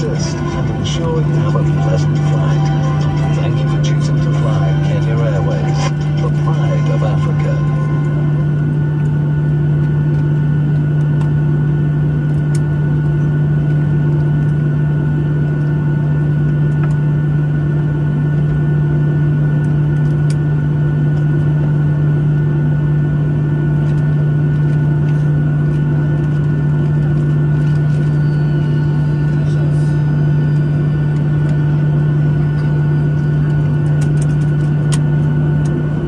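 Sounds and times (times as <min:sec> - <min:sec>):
faint high whine: 0:00.0 - 0:10.3, 0:27.6 - 0:34.6
aircraft cabin low hum: 0:00.0 - 0:36.0.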